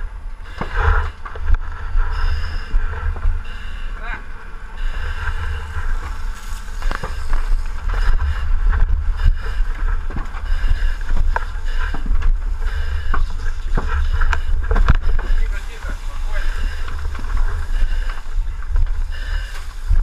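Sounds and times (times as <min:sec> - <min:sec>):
camera handling rumble and knocks: 0:05.8 - 0:15.4.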